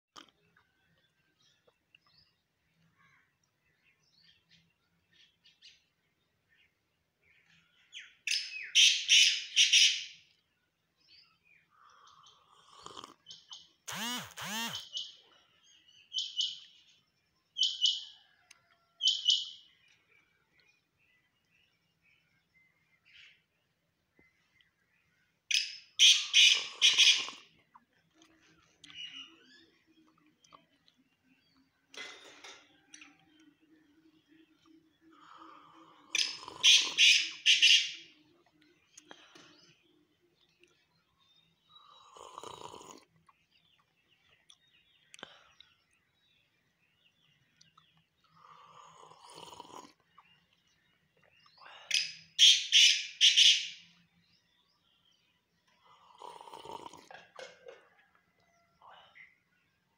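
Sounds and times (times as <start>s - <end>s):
bird calling harshly: 13.9s - 15.2s, 25.5s - 27.5s, 36.2s - 38.1s, 52.0s - 53.8s.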